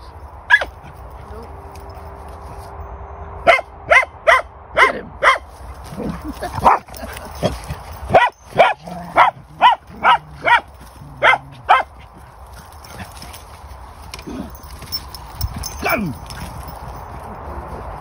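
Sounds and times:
dog barking high-pitched: 0.5 - 0.7, 3.4 - 5.5, 6.6 - 6.9, 8.1 - 12.0.

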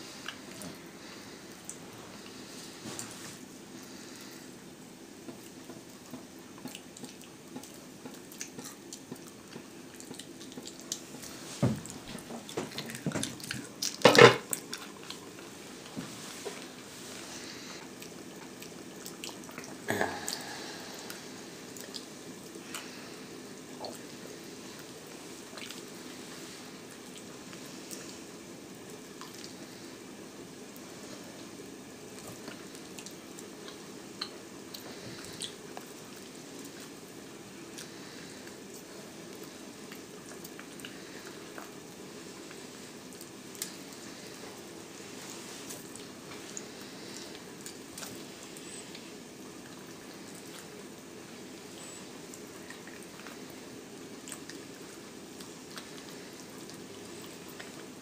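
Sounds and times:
wet gnawing on bone: 5.4 - 11.4.

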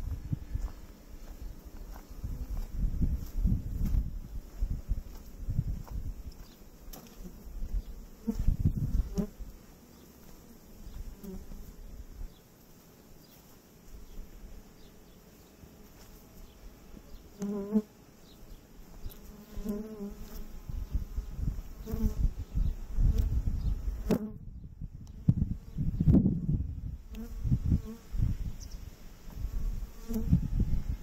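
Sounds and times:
honeybees buzzing: 0.0 - 24.4, 25.0 - 31.0
bee flying past microphone: 6.9 - 9.5, 19.0 - 24.5, 25.2 - 31.0.

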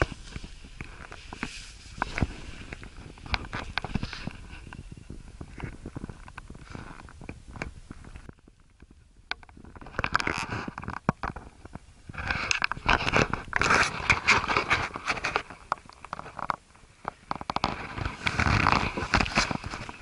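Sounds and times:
clothing rustling: 17.1 - 20.0.

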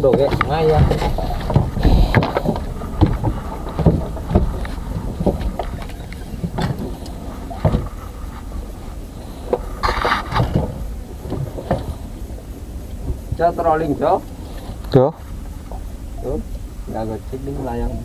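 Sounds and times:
boat engine droning: 0.0 - 18.0
knocks on wooden boat: 0.1 - 5.5.

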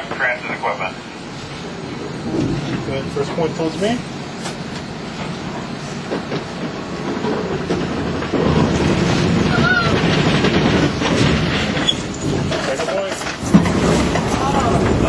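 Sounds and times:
subway car wheels and motors rumbling: 0.0 - 15.0.

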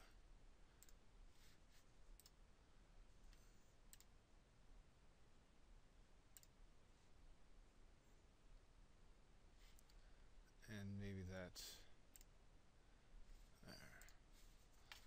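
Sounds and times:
computer mouse clicks: 0.8 - 1.0, 2.2 - 2.4, 3.3 - 4.1, 6.3 - 6.6, 9.7 - 10.0, 12.1 - 12.3.

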